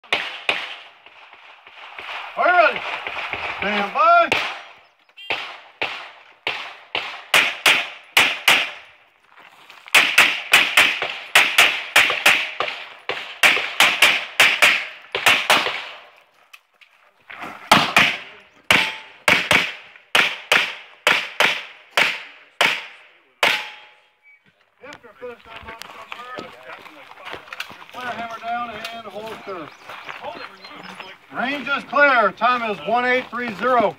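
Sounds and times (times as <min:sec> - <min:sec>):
pistol shots: 0:00.0 - 0:01.0, 0:02.8 - 0:08.8, 0:09.9 - 0:16.1, 0:17.7 - 0:24.0.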